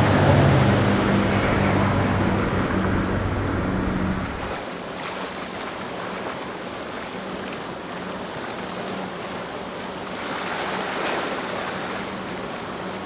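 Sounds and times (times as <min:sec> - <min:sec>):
boat engine droning: 0:00.0 - 0:13.0
rush of wake and waves: 0:00.0 - 0:13.0.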